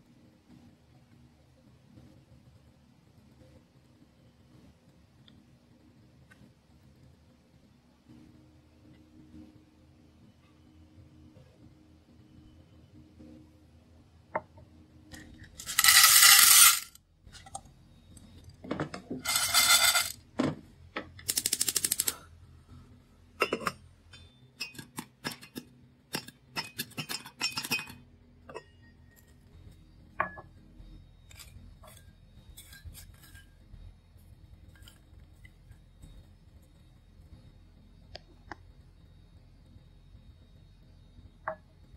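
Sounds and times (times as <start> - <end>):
popcorn kernels popping: 15.2 - 17.6, 19.2 - 20.2, 21.2 - 22.2, 23.4 - 28.0
pot lid rattling: 15.6 - 16.9, 19.2 - 20.2, 23.4 - 23.8.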